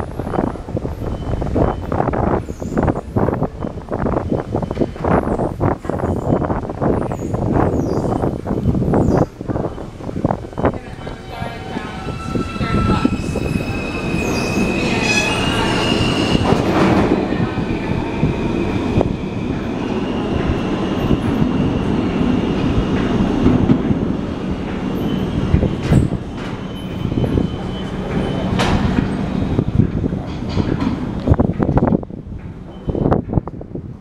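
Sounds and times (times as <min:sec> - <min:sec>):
subway train running: 0:00.0 - 0:34.0
wheels squealing: 0:04.2 - 0:17.1.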